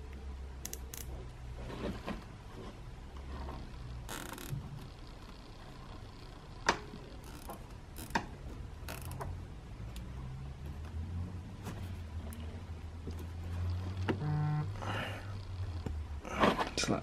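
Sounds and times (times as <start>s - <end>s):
low steady hum: 0.0s - 17.0s
cable ties ratcheting clicks: 0.6s - 1.1s.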